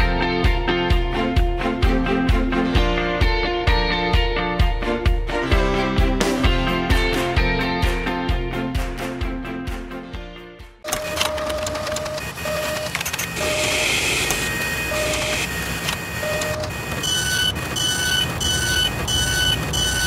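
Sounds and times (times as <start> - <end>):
mechanical whirring and clicking: 10.9 - 20.0
short electronic tones: 10.9 - 20.0.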